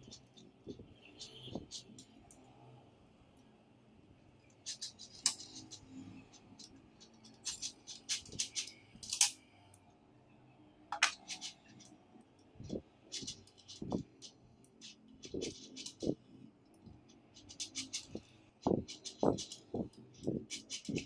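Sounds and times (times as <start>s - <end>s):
magnetic balls clicking together: 4.5s - 9.4s, 10.9s - 21.0s.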